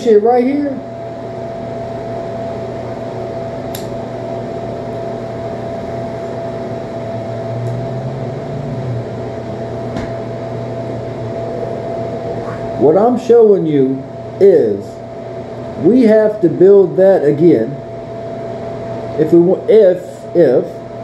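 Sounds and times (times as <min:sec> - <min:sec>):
ventilation fan humming: 0:00.0 - 0:21.0
lighter click: 0:03.7 - 0:03.9.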